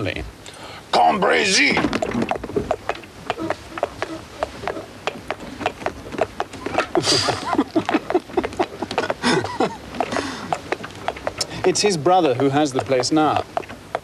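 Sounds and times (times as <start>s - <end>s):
horse hooves clip-clopping: 1.0s - 14.0s
man laughing: 6.8s - 10.5s.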